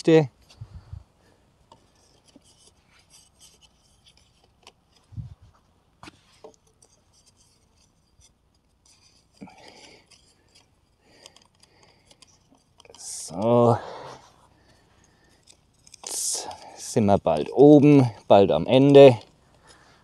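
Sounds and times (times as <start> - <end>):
stick scraping: 1.7 - 5.4, 6.0 - 20.0
wooden sticks clicking and knocking: 6.0 - 13.8, 15.0 - 19.8.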